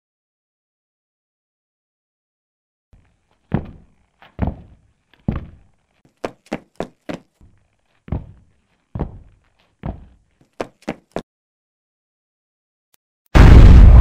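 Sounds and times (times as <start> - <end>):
heavy thudding footsteps: 3.0 - 11.2.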